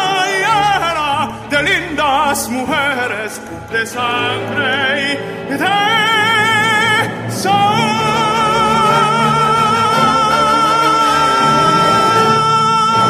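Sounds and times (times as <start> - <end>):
sustained orchestral chord: 0.0 - 13.0
operatic tenor singing high note: 5.7 - 13.0.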